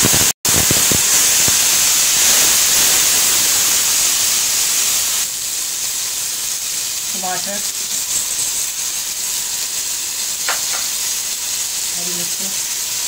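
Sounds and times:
oil sizzling with steam hiss: 0.0s - 13.0s
wooden spatula knocking pot: 10.5s - 10.9s.

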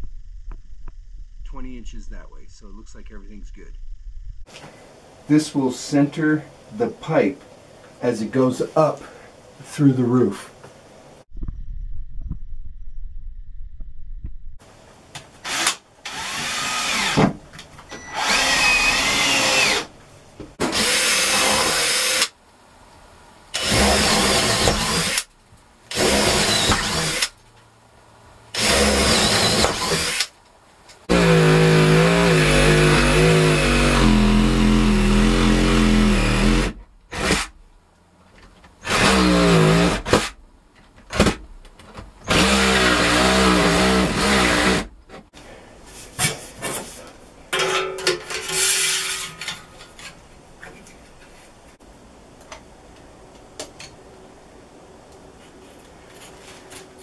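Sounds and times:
cordless drill boring wood: 15.4s - 17.2s, 18.1s - 19.9s, 20.6s - 22.3s, 23.6s - 25.3s, 25.9s - 27.3s, 28.5s - 30.3s, 31.1s - 37.5s, 38.8s - 40.3s, 42.2s - 44.9s
reciprocating saw cutting boards: 25.9s - 27.4s, 31.0s - 37.6s, 42.2s - 45.0s.

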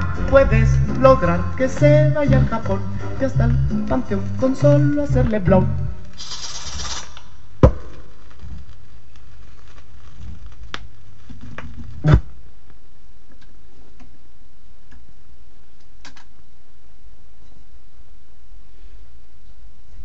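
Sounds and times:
vinyl surface noise and rumble: 0.0s - 20.0s
vinyl pops: 5.2s - 12.4s
vinyl ticks: 10.5s - 11.0s.

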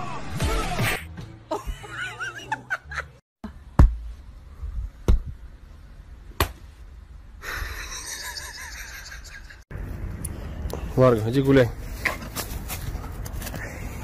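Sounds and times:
sharp slaps: 6.4s - 6.6s.

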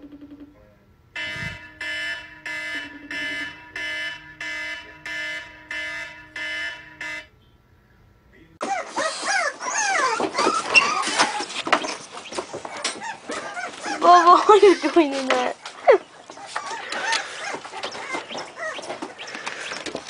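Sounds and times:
phone alarm beeping: 1.2s - 7.6s
dog whining: 8.6s - 19.9s.

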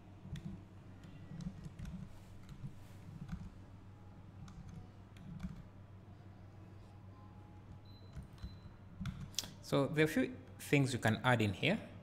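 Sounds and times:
low steady hum: 0.0s - 12.0s
mouse and keyboard clicks: 4.4s - 5.7s.

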